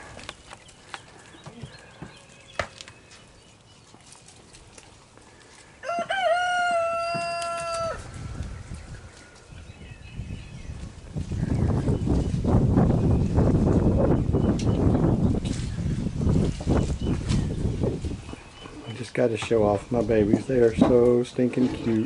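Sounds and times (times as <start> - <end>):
rooster crowing: 5.8 - 8.1.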